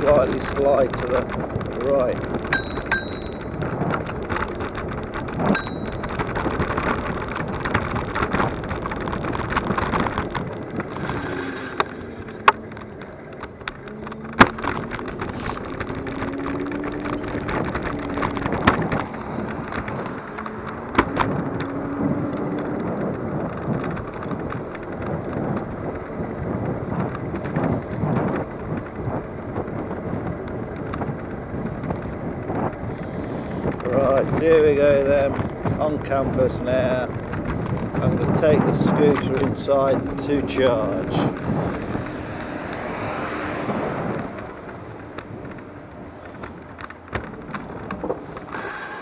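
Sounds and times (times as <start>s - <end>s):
electric scooter rumble and rattle: 0.0s - 49.0s
knocks over bumps: 0.0s - 49.0s
wind buffeting microphone: 0.0s - 49.0s
bell ding: 2.6s - 3.5s, 5.6s - 6.0s.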